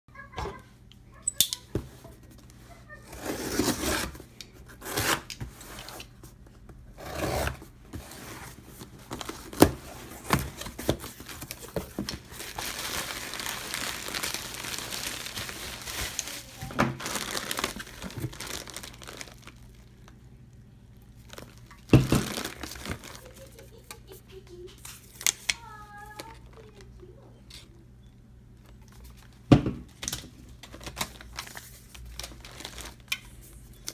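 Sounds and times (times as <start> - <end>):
bubble wrap crinkling: 8.1 - 26.9, 30.5 - 33.9
packing tape ripping: 9.2 - 19.9, 21.2 - 23.4.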